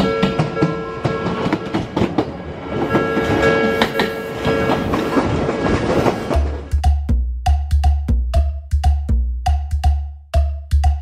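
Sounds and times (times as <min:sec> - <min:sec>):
steady crossing tones: 0:00.0 - 0:05.6
train wheels clacking over rail joints: 0:00.0 - 0:06.8.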